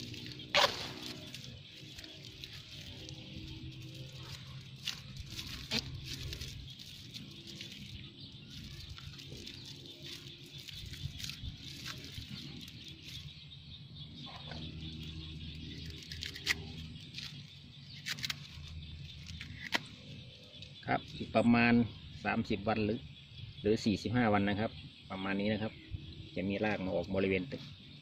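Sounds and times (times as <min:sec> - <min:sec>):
plastic strap crackling: 0:00.0 - 0:13.3.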